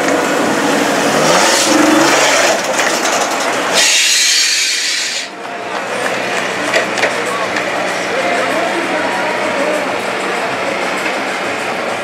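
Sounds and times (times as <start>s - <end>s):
suv engine revving: 0.0s - 5.3s.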